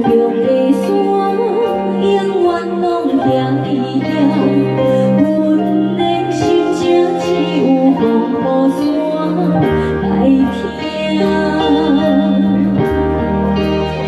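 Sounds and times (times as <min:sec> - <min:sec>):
live band playing: 0:00.0 - 0:14.0
woman singing into microphone: 0:00.0 - 0:14.0
held bass notes: 0:03.7 - 0:14.0.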